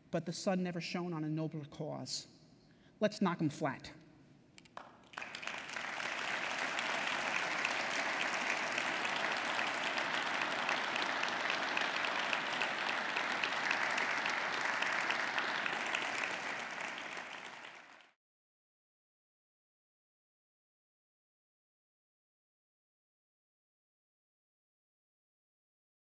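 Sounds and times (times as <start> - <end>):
large audience applauding: 4.8 - 18.2.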